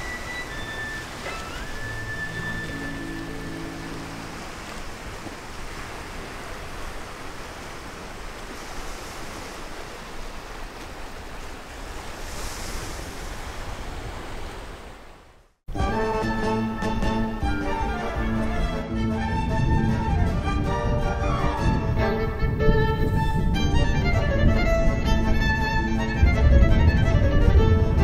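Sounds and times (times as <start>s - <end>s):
waves washing against rocks: 0.0s - 15.2s.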